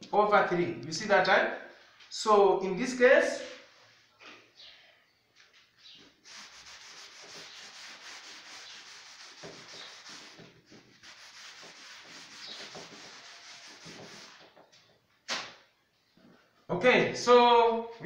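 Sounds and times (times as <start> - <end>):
chalkboard being wiped: 6.0 - 14.7.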